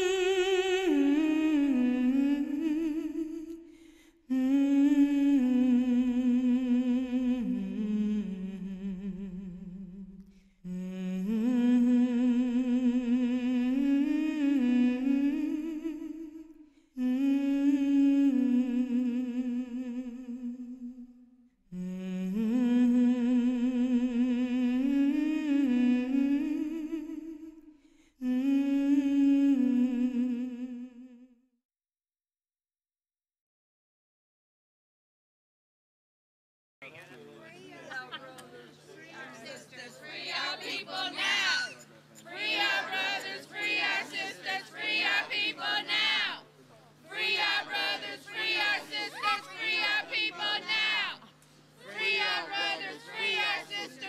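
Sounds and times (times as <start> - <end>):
person humming a melody: 0.0 - 3.7, 4.3 - 31.4.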